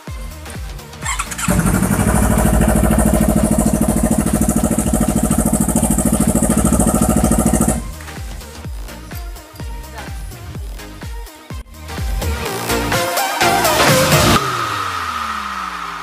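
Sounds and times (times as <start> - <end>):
motorcycle engine starting and running: 0.3 - 8.5.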